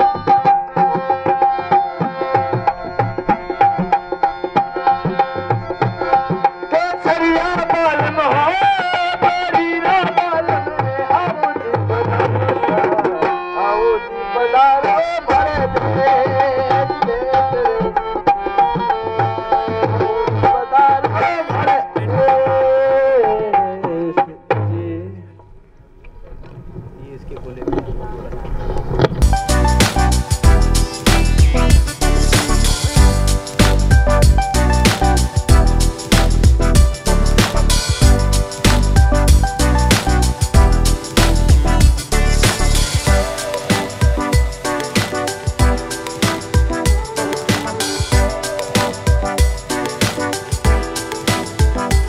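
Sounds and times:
sliding melody line: 0:29.2 - 0:52.0
hand drum beating: 0:32.8 - 0:52.0.

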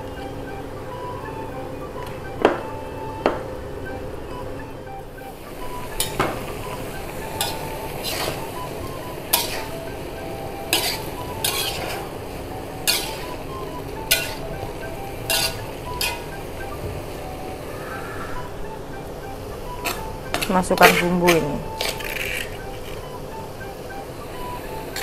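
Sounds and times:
vegetables sizzling in oil: 0:05.2 - 0:17.7, 0:18.4 - 0:25.0
spatula clinking against pan: 0:09.3 - 0:09.9, 0:10.7 - 0:12.1, 0:12.8 - 0:14.6, 0:15.3 - 0:16.4.

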